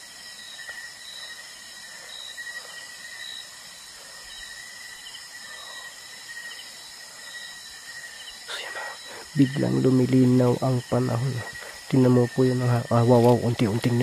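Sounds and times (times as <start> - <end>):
night insects chirping: 0.0 - 14.0.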